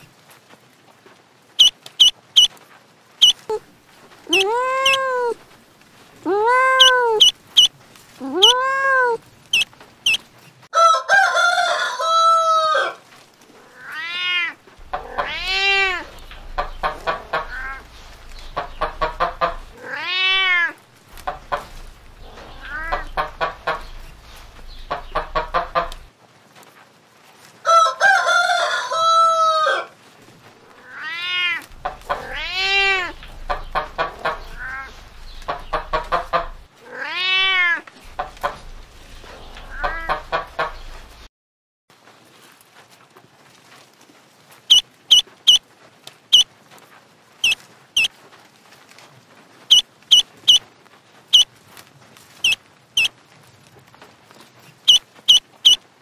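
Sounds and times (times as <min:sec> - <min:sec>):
hen clucking and calling: 0:01.6 - 0:02.5, 0:03.2 - 0:03.6, 0:04.3 - 0:05.4, 0:06.5 - 0:07.7, 0:08.3 - 0:08.7, 0:09.5 - 0:10.2, 0:14.8 - 0:20.1, 0:21.1 - 0:26.1, 0:31.6 - 0:36.7, 0:38.0 - 0:41.3, 0:44.7 - 0:45.6, 0:47.4 - 0:48.1, 0:49.7 - 0:50.6, 0:52.4 - 0:53.1, 0:54.9 - 0:55.8.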